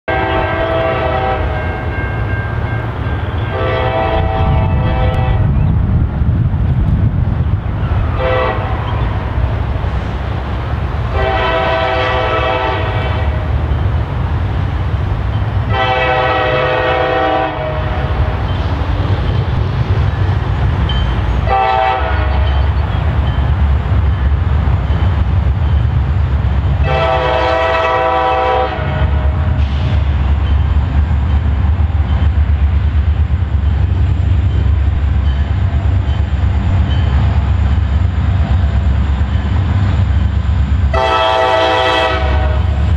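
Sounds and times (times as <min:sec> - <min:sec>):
low train rumble: 0:00.0 - 0:42.9
train air horn: 0:00.1 - 0:02.1, 0:03.4 - 0:05.5, 0:08.1 - 0:09.0, 0:11.1 - 0:13.5, 0:15.7 - 0:18.4, 0:21.4 - 0:22.7, 0:26.8 - 0:30.0, 0:40.9 - 0:42.9.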